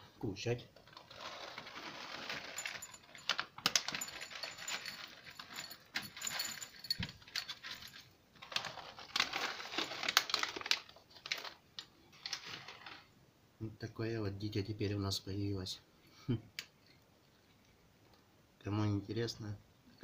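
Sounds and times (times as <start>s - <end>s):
plastic bag crinkling: 0.8s - 13.1s
dry cat food rattling into bowl: 0.9s - 13.0s.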